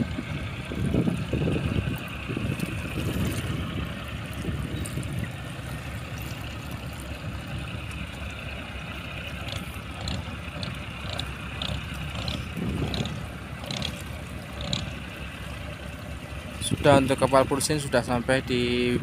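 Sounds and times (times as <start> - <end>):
wind on microphone: 0.0 - 5.6, 12.2 - 13.4
boat diesel engine rumbling: 0.0 - 19.0.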